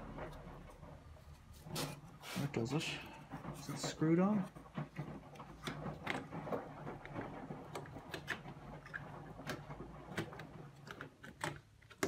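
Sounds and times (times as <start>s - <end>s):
small plastic clicks and taps: 7.7s - 12.0s.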